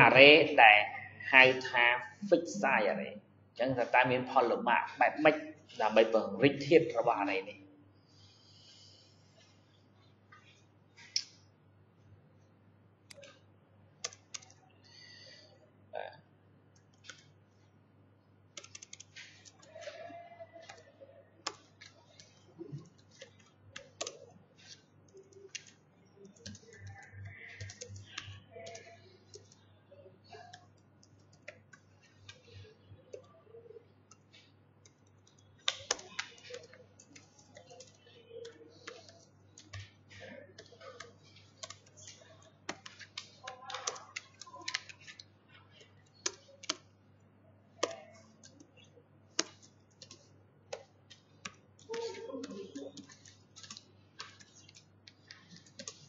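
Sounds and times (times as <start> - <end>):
typing on computer keyboard: 13.1 - 13.4, 14.0 - 14.6, 16.7 - 17.4, 18.5 - 29.6, 30.2 - 46.9, 47.8 - 56.0.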